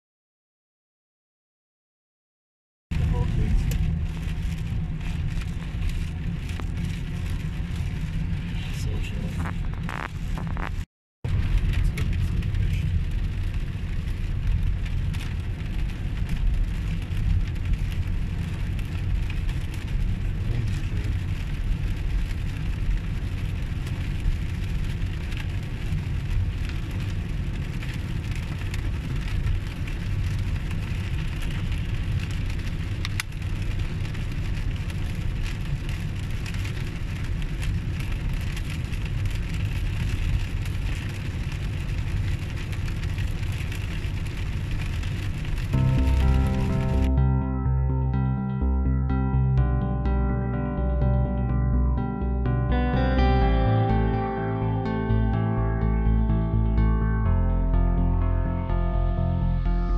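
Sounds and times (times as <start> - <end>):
engine and tyre rumble: 2.9 - 59.9
rain and wet road hiss: 3.0 - 47.1.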